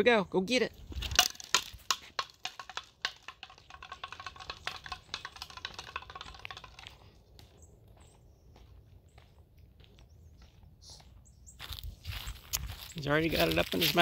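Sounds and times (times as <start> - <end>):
ball clattering on asphalt: 0.8 - 7.6.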